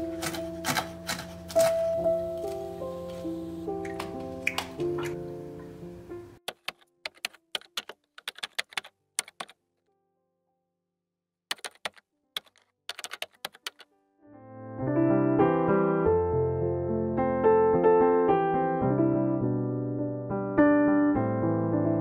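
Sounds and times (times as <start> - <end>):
music: 0.0 - 6.4, 13.7 - 22.0
piano music: 0.0 - 9.5, 11.6 - 22.0
keyboard typing clicks: 6.5 - 9.6, 11.5 - 13.9.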